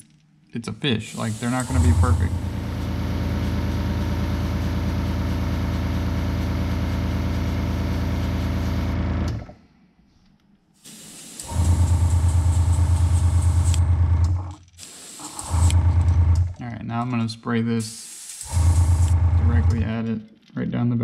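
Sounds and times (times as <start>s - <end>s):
airbrush air hiss: 1.0s - 4.4s, 10.8s - 13.8s, 14.8s - 15.7s, 17.8s - 19.2s
air compressor humming: 1.0s - 9.6s, 10.8s - 16.7s, 17.8s - 20.0s.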